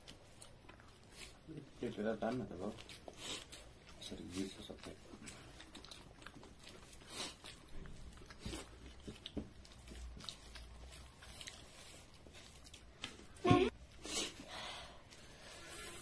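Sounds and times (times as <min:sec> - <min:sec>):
chewing: 0:00.0 - 0:14.4.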